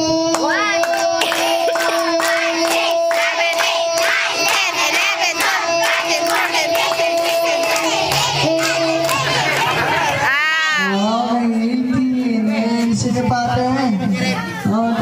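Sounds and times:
children shouting and chanting: 0.0s - 11.5s, 12.6s - 14.9s
hand clapping: 0.2s - 9.7s.

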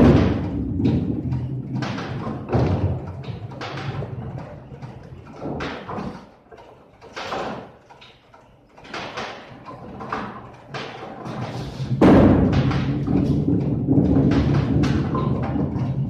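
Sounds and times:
bowling balls rumbling: 0.0s - 6.2s, 9.8s - 16.0s
knocks and crashes: 0.0s - 6.2s, 8.9s - 16.0s.

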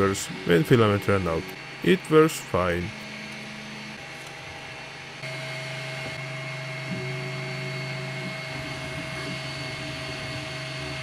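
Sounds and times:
printer motors and fans humming: 0.0s - 11.0s
printer tone: 5.2s - 11.0s.

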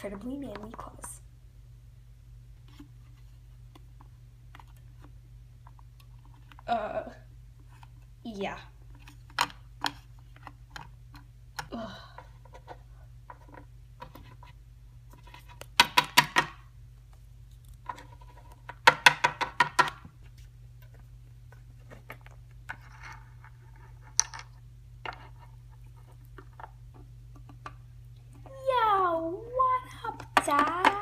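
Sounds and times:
plastic figurines tapping on wood: 18.8s - 20.1s, 30.2s - 31.0s.

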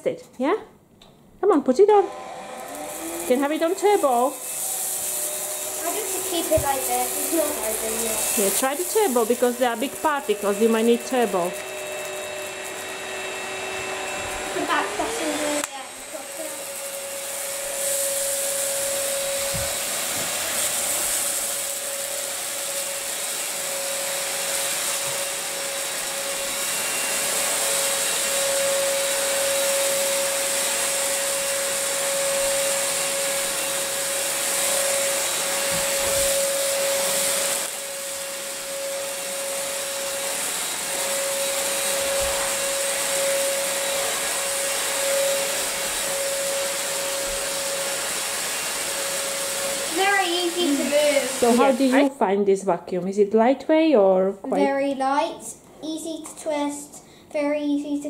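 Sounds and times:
vacuum cleaner on carpet: 1.8s - 52.2s, 54.5s - 55.3s.

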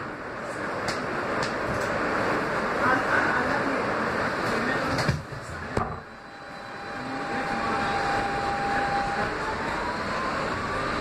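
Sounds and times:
subway wheel and track rumble: 0.0s - 11.0s
train propulsion whine: 0.0s - 11.0s.

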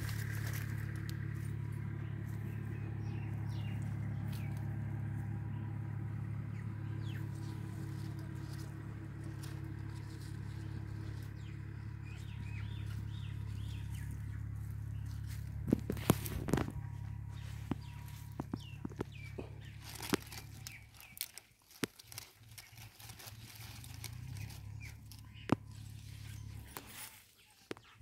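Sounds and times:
low motor hum: 0.0s - 28.0s
small birds chirping: 0.0s - 28.0s.

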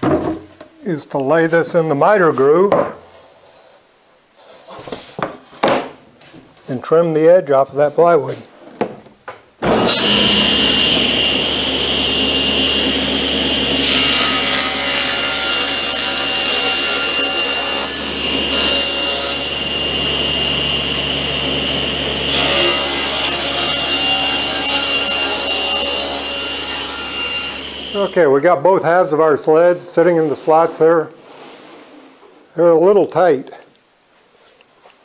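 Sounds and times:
saw blade cutting plywood: 9.6s - 28.1s
table saw whining: 9.6s - 28.2s.

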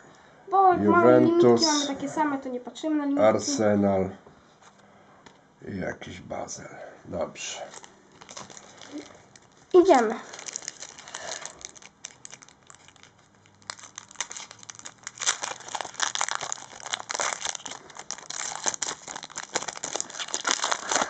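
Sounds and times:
foil wrapper crinkling and tearing: 7.6s - 21.0s.

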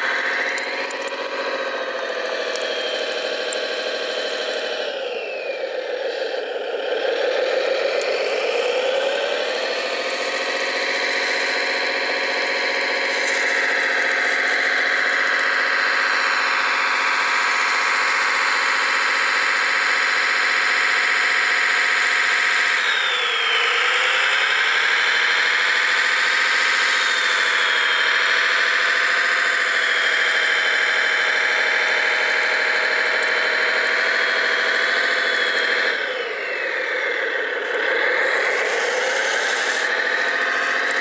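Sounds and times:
model dozer drive whining: 0.0s - 15.1s, 32.4s - 41.0s.

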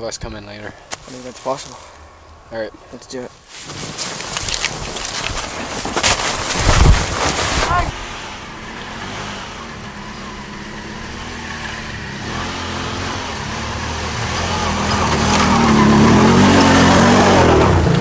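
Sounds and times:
atv engines running: 4.2s - 18.0s.

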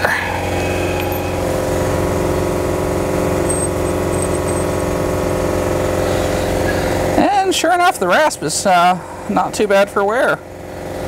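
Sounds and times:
air die grinder running: 0.0s - 7.2s.

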